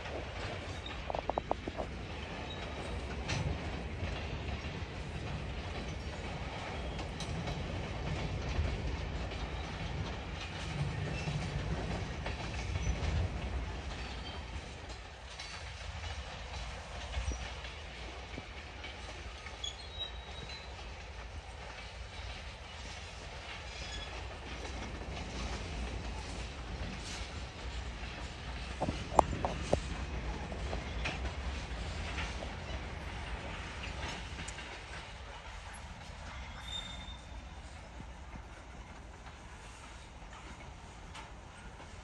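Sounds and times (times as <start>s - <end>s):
freight train rumbling past: 0.0s - 42.0s
wheels clicking over rail joints: 0.0s - 42.0s
faint wheel squeals: 19.5s - 20.8s, 36.3s - 37.8s.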